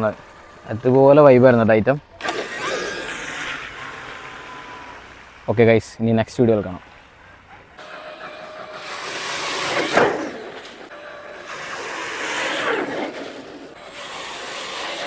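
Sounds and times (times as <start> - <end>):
electric motor whine: 2.2 - 5.5, 7.8 - 15.0
water spraying: 13.8 - 15.0.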